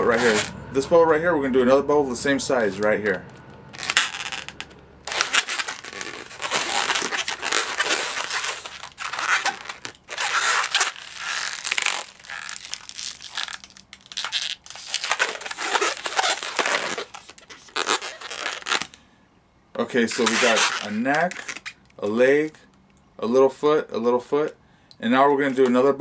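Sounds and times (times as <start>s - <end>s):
balloon being twisted: 3.7s - 19.0s, 20.1s - 21.8s.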